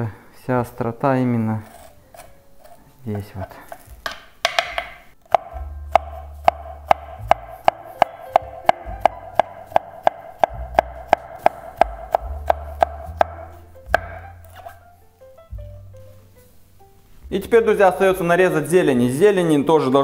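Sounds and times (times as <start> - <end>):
knife chopping on wooden board: 3.7 - 14.8
background music with bass line: 4.8 - 18.7.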